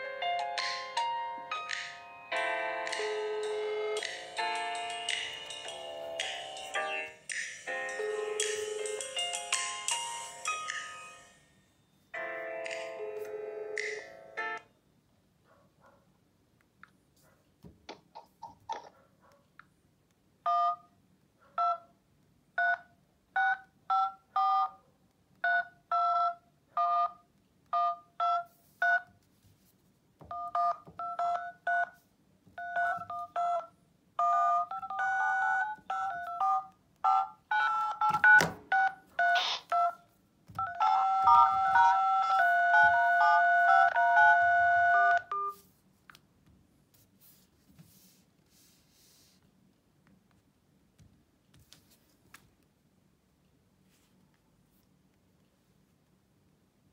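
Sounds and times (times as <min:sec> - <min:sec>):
two-tone keypad beeps: 0:32.6 - 0:40.0.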